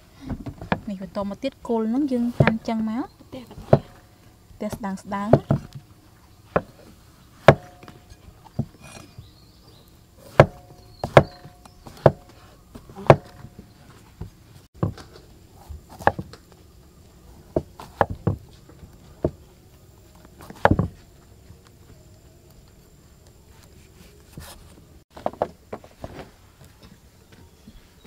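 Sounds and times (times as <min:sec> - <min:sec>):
knife chopping on wooden board: 0:02.3 - 0:02.7, 0:03.5 - 0:04.0, 0:07.4 - 0:09.2, 0:10.2 - 0:13.6, 0:14.8 - 0:16.4.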